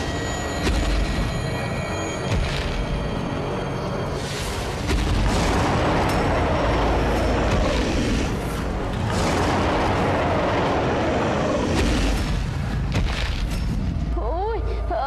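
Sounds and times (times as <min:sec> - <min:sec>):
dramatic music: 0:00.0 - 0:15.0
deep rumbling and booming: 0:04.5 - 0:14.8.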